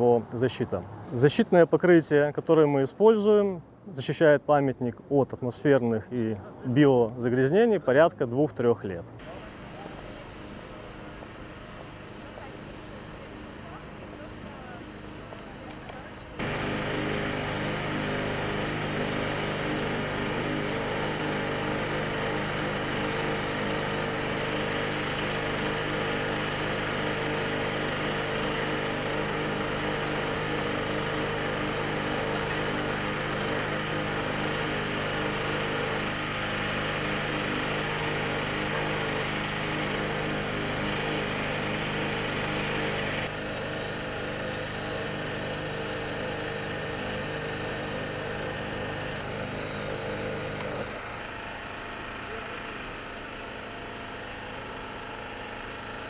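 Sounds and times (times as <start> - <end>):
high-pressure spray hissing: 9.2 - 51.2
pressure washer motor droning: 9.2 - 56.0.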